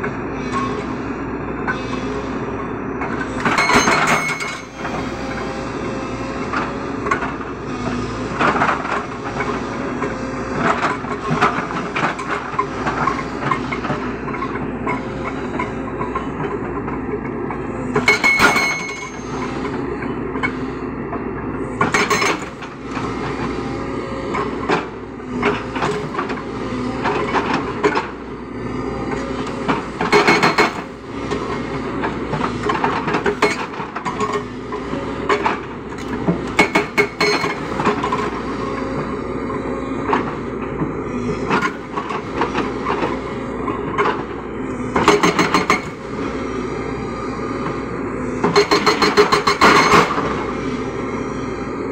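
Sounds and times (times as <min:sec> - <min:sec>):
excavator diesel engine running: 0:00.0 - 0:51.9
hydraulic rock breaker hammering: 0:03.2 - 0:05.7, 0:06.4 - 0:19.7, 0:29.1 - 0:39.1, 0:40.0 - 0:46.2, 0:48.4 - 0:50.5.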